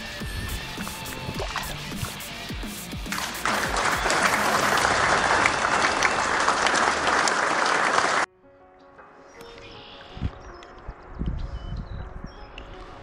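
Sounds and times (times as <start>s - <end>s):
water splashing and churning: 0.9s - 2.4s.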